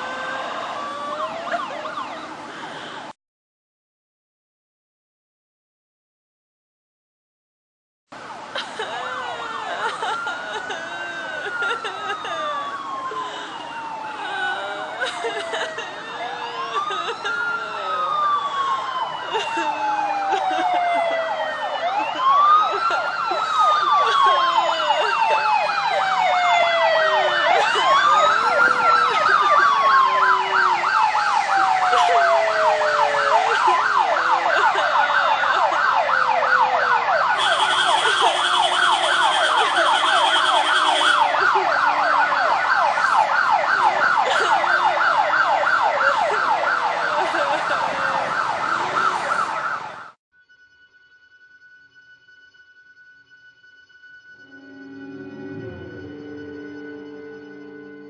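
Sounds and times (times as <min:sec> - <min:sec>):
siren wailing: 0:00.0 - 0:02.7, 0:08.3 - 0:50.2, 0:51.5 - 0:58.0
siren yelp: 0:00.0 - 0:02.9, 0:08.2 - 0:50.2, 0:54.4 - 0:58.0
horn blast: 0:37.4 - 0:41.2, 0:54.4 - 0:58.0.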